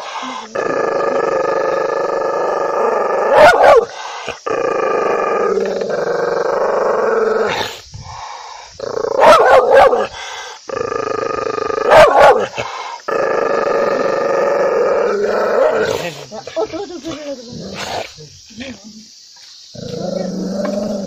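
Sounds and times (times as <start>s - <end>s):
dog barking: 3.3s - 3.9s, 9.2s - 10.1s, 11.9s - 12.6s.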